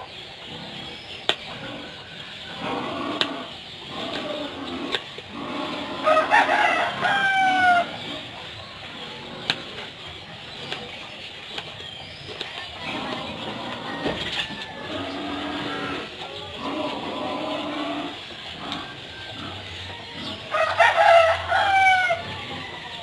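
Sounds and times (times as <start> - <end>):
rooster crowing: 6.0 - 8.0, 12.9 - 16.0, 17.6 - 23.0.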